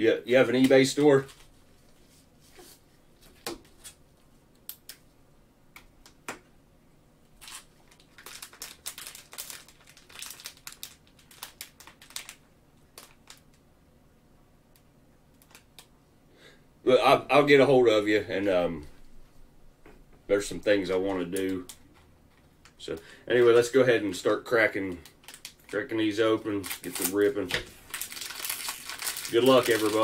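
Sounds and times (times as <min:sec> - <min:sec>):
plastic wrappers crinkling: 0:07.4 - 0:13.6, 0:23.6 - 0:30.0.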